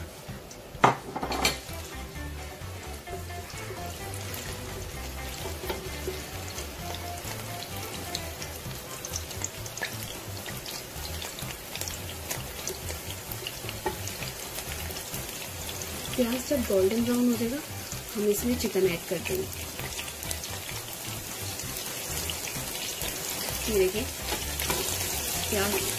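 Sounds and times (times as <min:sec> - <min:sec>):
onion sizzling in hot oil: 0:00.0 - 0:25.9.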